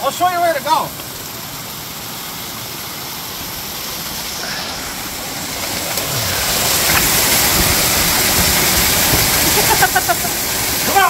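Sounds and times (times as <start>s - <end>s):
water rushing through metal pipe: 0.0s - 11.0s.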